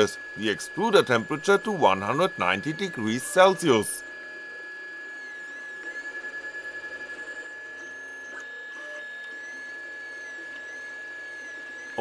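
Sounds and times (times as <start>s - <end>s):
steady high tone: 0.0s - 4.1s
stepper motors whining: 0.0s - 12.0s.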